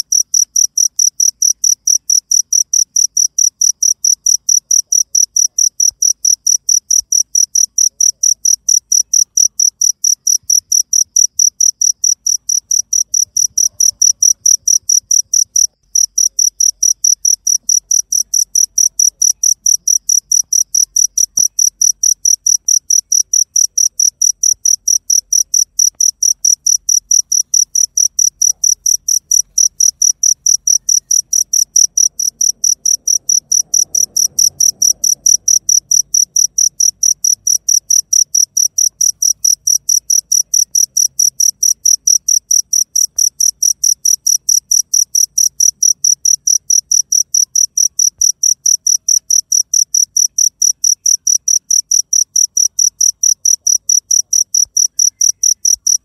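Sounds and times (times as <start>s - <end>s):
cricket chirping: 0.0s - 56.0s.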